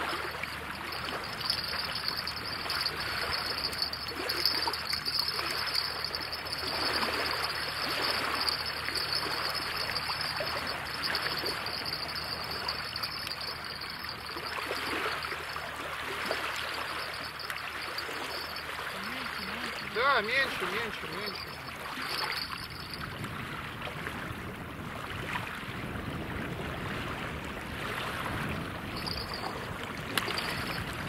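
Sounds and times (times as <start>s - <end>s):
water running: 0.9s - 15.4s.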